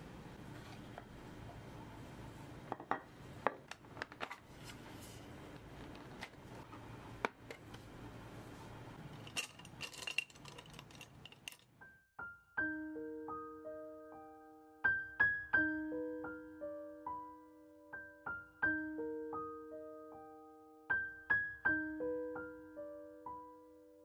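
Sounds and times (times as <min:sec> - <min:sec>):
soft piano music: 0:11.8 - 0:24.0.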